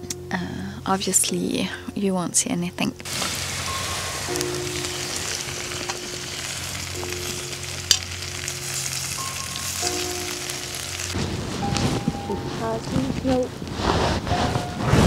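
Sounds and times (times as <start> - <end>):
vegetables sizzling in pan: 3.1 - 12.8.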